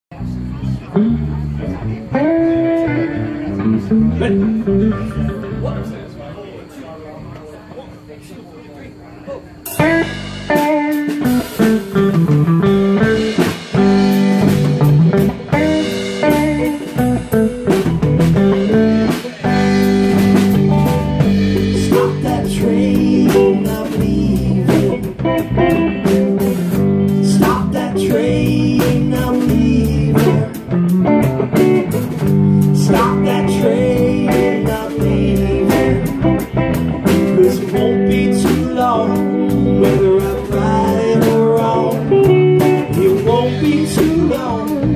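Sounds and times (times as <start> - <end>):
live rock band playing: 0.1 - 6.0, 9.6 - 44.9
man singing: 19.1 - 31.0, 32.6 - 44.9.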